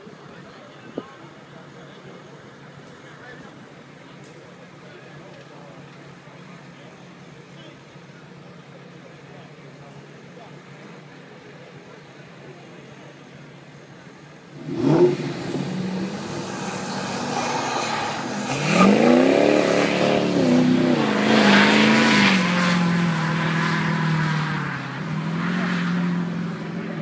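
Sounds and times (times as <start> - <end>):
tires burning out: 13.4 - 27.0
engines revving and accelerating: 14.5 - 27.0.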